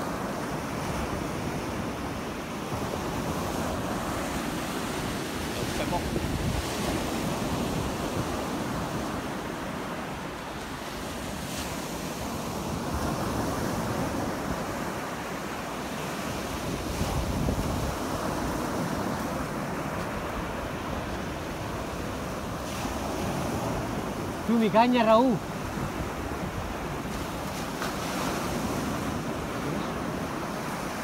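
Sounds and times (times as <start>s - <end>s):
surf breaking on shore: 0.0s - 31.0s
wind buffeting microphone: 0.8s - 9.4s, 16.2s - 24.6s.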